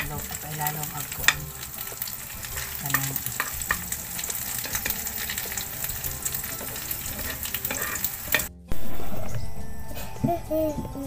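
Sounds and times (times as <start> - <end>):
metal spoon scraping pan: 0.0 - 8.5
omelette sizzling in pan: 0.0 - 8.5.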